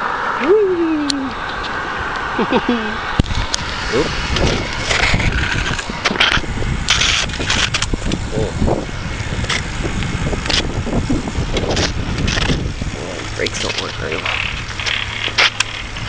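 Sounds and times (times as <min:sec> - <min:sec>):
wind on microphone: 0:00.0 - 0:16.0
bike tyres crunching on rough ground: 0:03.3 - 0:16.0.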